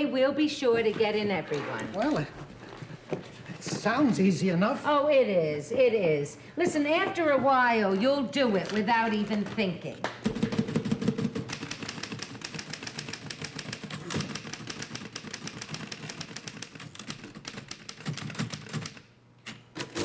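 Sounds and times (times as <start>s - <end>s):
typewriter keystroke clacks: 10.3s - 20.0s.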